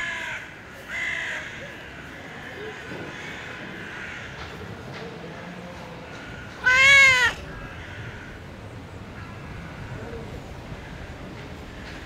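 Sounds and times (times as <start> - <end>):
cat meowing: 6.6 - 7.4.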